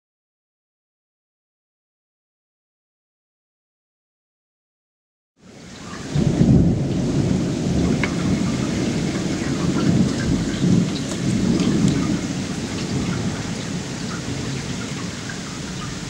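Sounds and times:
raindrops ticking: 5.6 - 16.0
rolling thunder: 5.6 - 16.0.

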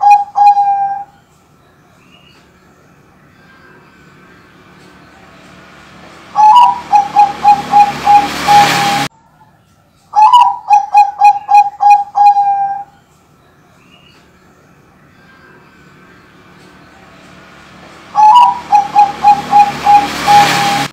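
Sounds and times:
dove cooing: 0.0 - 1.1, 6.4 - 9.0, 10.2 - 12.9, 18.1 - 20.9.

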